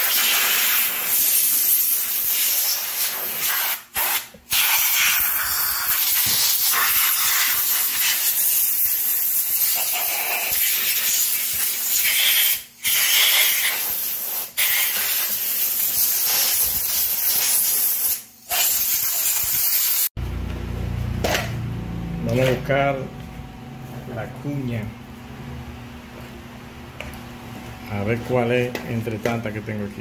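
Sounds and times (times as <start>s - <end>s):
aerosol spray hissing: 12.9s - 20.1s.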